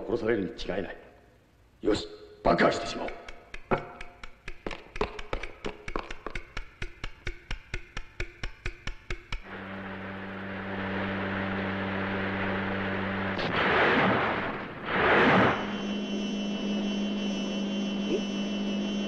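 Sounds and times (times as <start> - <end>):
hum with higher tones: 9.4 - 19.0
low mechanical hum: 9.5 - 14.6, 15.2 - 19.0.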